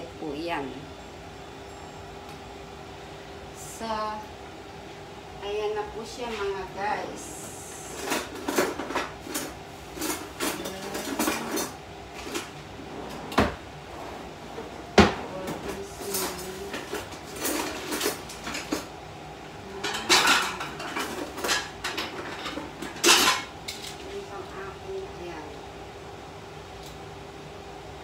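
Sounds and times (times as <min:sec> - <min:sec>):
dishes clinking and knocking: 0:08.0 - 0:12.5, 0:14.6 - 0:18.9, 0:19.8 - 0:24.0.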